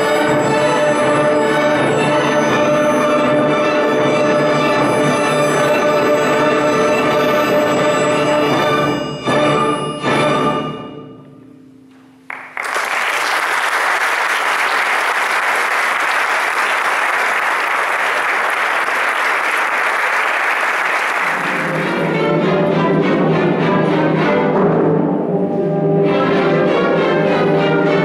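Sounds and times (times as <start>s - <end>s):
orchestra playing: 0.0s - 12.9s, 14.3s - 28.0s
audience applause: 12.3s - 22.1s.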